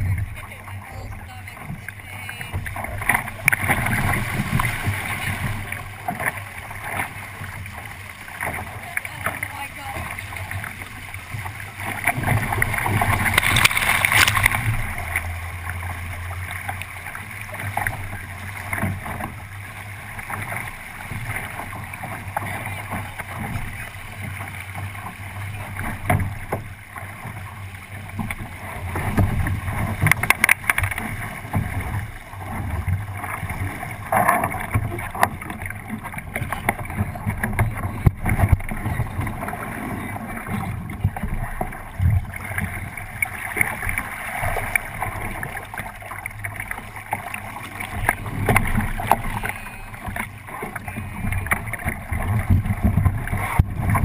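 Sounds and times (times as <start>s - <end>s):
water rushing along a hull: 0.0s - 54.0s
wind noise on microphone: 50.9s - 54.0s.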